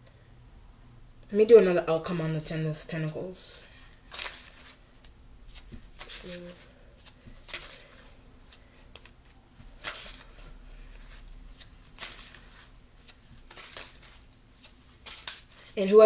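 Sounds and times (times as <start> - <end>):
cards being shuffled: 3.8 - 15.9.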